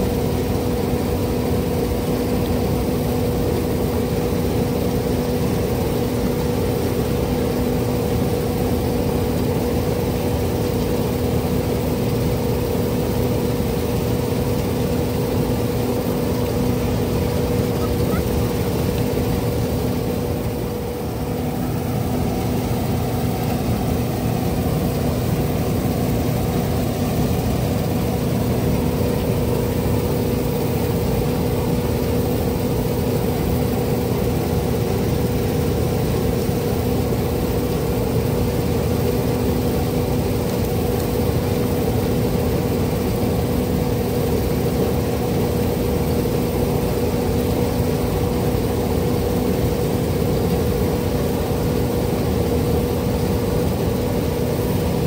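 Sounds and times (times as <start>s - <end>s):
diesel engine drone: 0.0s - 41.9s.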